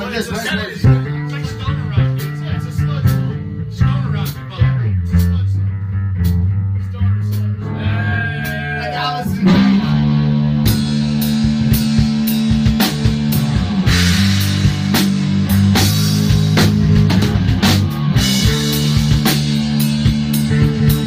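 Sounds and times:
rock music: 0.0 - 21.0
drums hitting hard: 7.4 - 21.0.

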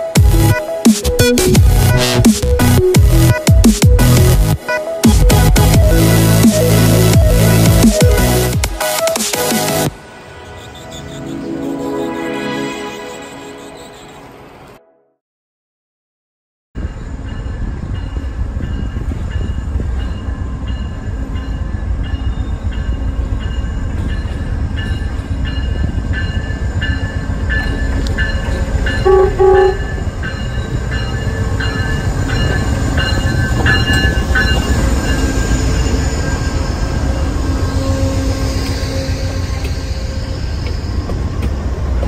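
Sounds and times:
train rumbling with clicks: 16.8 - 42.0
train horn blasts: 29.0 - 30.1.

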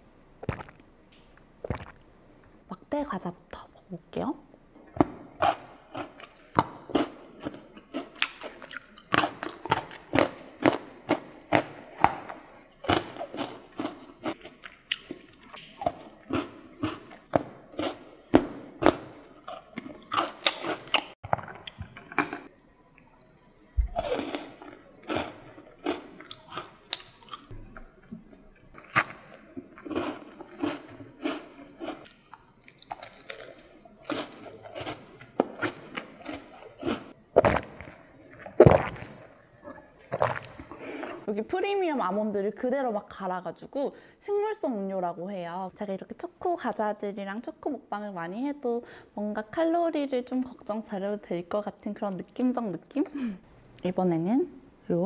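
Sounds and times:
mouth sounds: 1.6 - 2.0, 37.4 - 41.2
crunching and chewing biscuits: 5.4 - 27.5, 28.7 - 41.3.

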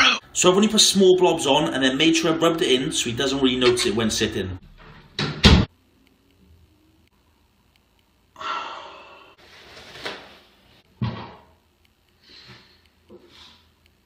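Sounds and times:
door slamming: 5.2 - 5.7.

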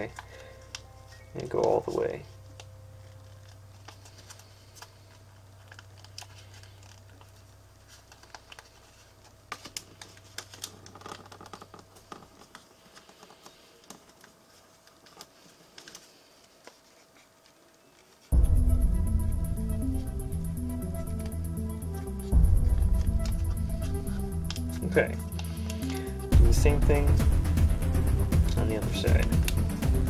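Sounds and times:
faint low hum: 0.0 - 11.0
paper being folded and creased: 0.0 - 18.3, 21.0 - 26.3.

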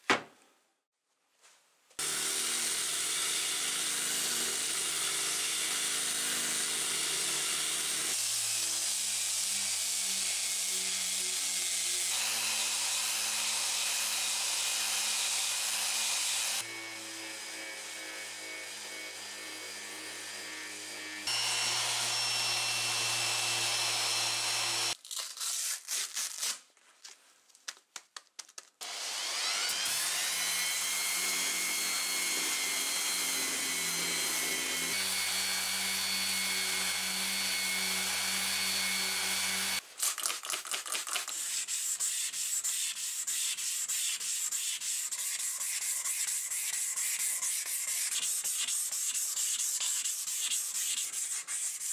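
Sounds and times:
orbital sander whining: 2.0 - 25.0, 28.8 - 39.8
hand sanding block rubbing: 40.7 - 51.9.

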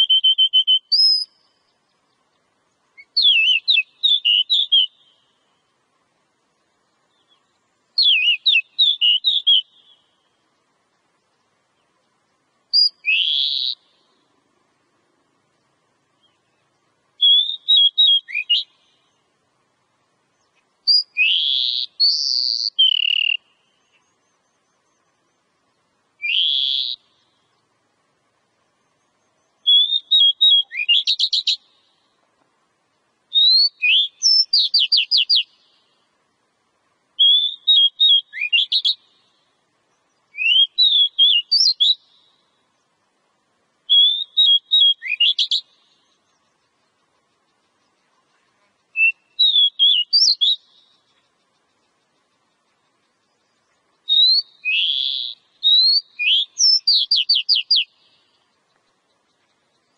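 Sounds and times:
bird singing whistled phrases: 0.0 - 1.8, 3.0 - 5.4, 8.0 - 10.2, 12.7 - 14.1, 17.2 - 19.1, 20.8 - 25.0, 26.2 - 27.4, 29.2 - 32.0, 33.3 - 36.0, 37.2 - 39.4, 40.3 - 42.4, 43.9 - 46.2, 48.8 - 51.2, 54.0 - 58.4.

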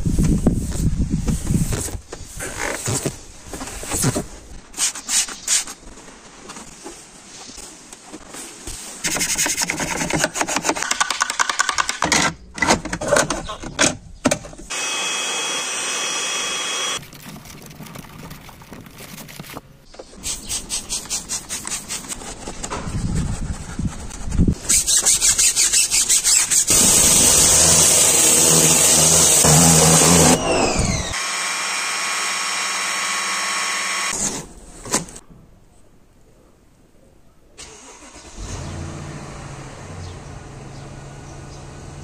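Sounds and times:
machine whir: 14.7 - 17.0
pressure washer spraying: 24.7 - 30.4.

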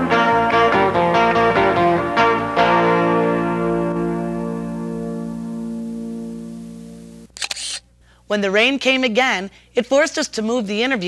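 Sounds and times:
sustained music chord: 0.0 - 7.2.

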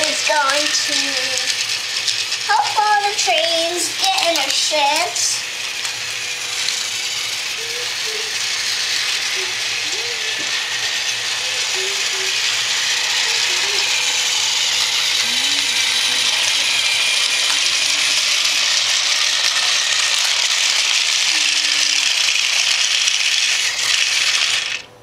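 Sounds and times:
train rattling on plastic track: 0.0 - 24.9
toy train motor whirring: 0.0 - 25.0.

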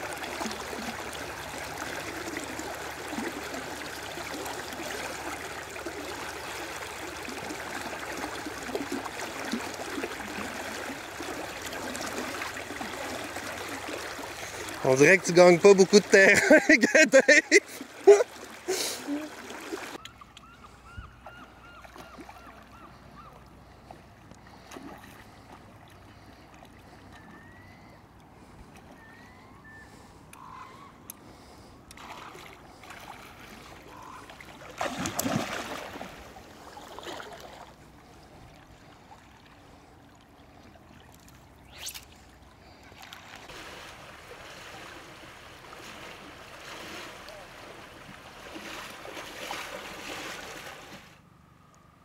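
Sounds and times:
shallow river flowing: 0.0 - 52.0
splashing footsteps in water: 31.9 - 37.8, 43.0 - 51.1
loud splash: 34.6 - 36.2.

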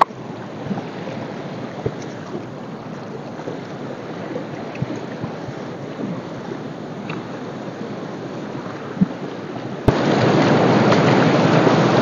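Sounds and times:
footsteps wading in water: 0.0 - 7.5
river rushing over stones: 0.0 - 12.0.

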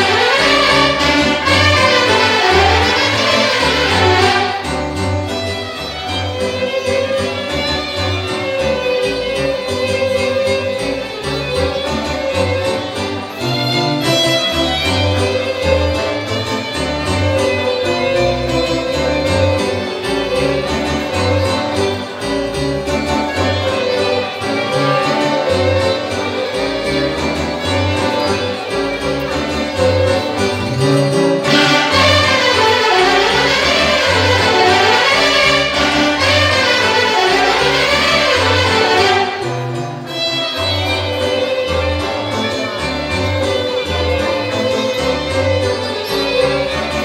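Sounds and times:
folk orchestra: 0.0 - 47.0
solo violin melody: 0.0 - 47.0.

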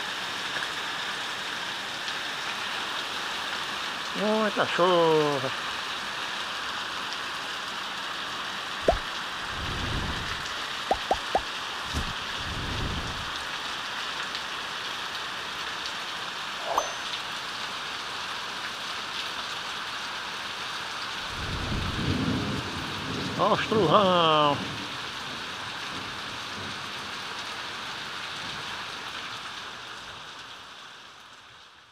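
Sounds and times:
heavy rain on tiled roofs: 0.0 - 31.9
sharp taps: 8.9 - 9.1, 10.9 - 11.4.

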